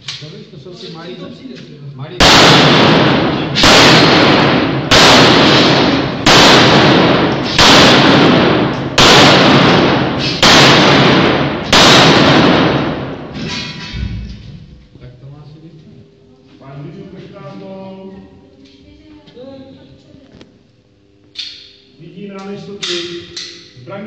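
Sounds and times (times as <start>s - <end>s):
handgun shots echoing: 2.2s - 13.5s, 22.8s - 23.7s.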